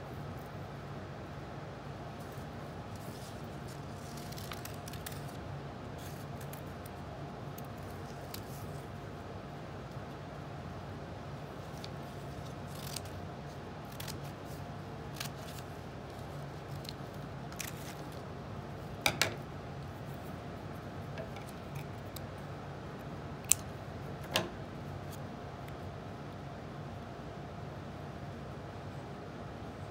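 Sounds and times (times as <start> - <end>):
steady low hum: 0.0 - 29.9
paper clicks: 3.0 - 5.4, 11.6 - 13.2.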